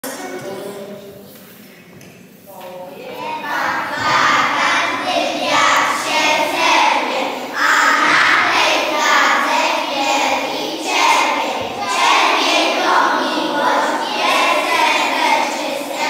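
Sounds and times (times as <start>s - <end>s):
children singing together: 2.9s - 16.0s.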